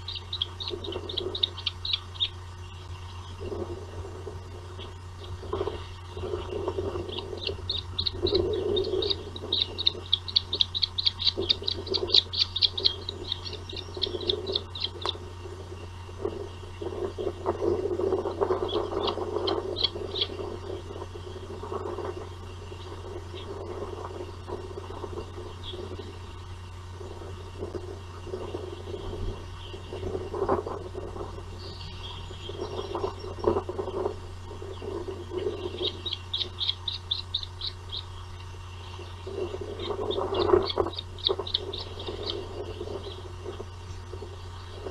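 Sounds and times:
bird high chirps: 0.0 - 3.4, 4.7 - 15.2, 18.6 - 21.3, 34.6 - 44.9
dull low sounds: 0.0 - 44.9
steady low hum: 0.0 - 44.9.

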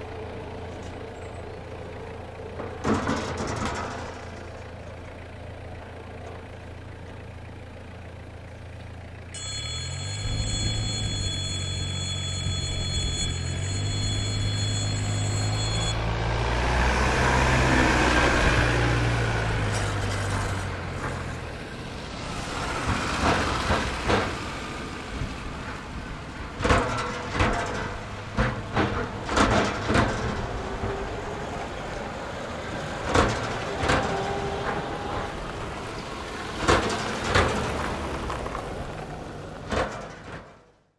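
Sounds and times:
vehicle engines running low: 0.0 - 40.9
crossing warning signal ringing: 9.3 - 16.4.

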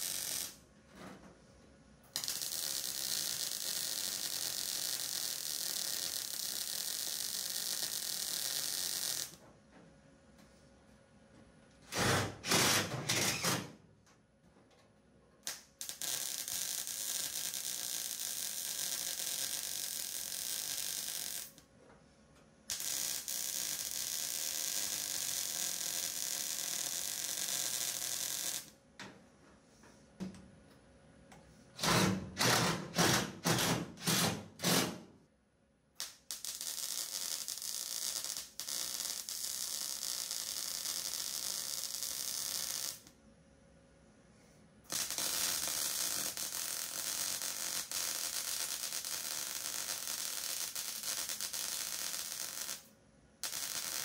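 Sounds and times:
short loud welding bursts: 0.0 - 0.6, 2.2 - 9.4, 11.9 - 13.7, 15.5 - 21.6, 22.7 - 28.7, 31.8 - 35.0, 36.0 - 43.1, 44.9 - 54.0
welder hissing: 0.0 - 0.6, 44.9 - 52.8, 53.4 - 54.0.

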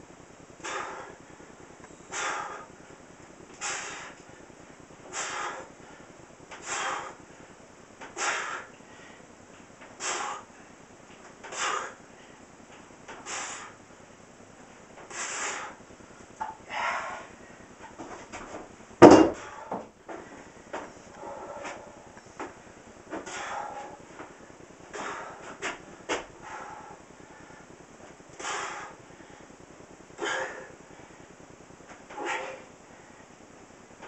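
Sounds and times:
man breathing forcefully: 0.6 - 9.3, 10.0 - 10.6, 11.4 - 12.5, 13.1 - 13.8, 15.1 - 15.8, 16.6 - 17.7, 19.0 - 20.6, 21.2 - 27.8, 28.4 - 29.6, 30.2 - 31.4, 32.1 - 33.3.

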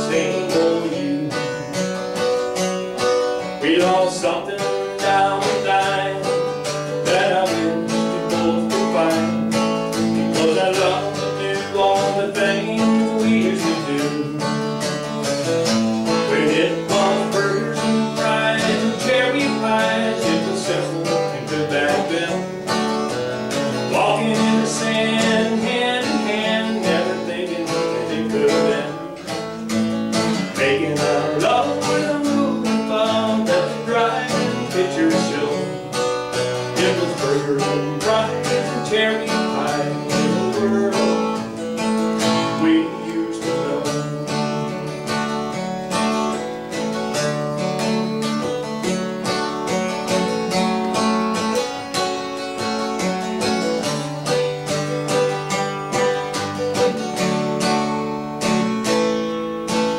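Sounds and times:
person singing: 0.0 - 2.1, 3.3 - 15.0, 16.2 - 23.0, 23.6 - 45.4
strummed acoustic guitar: 0.0 - 59.9.

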